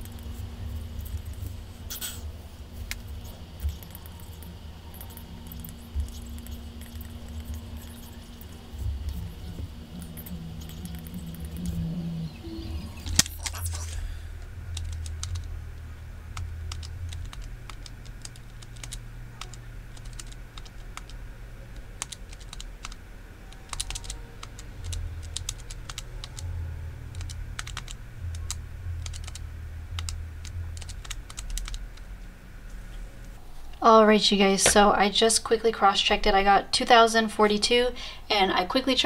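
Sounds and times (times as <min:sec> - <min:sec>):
steady low hum: 0:00.0 - 0:39.0
calculator buttons clicking: 0:22.0 - 0:26.4.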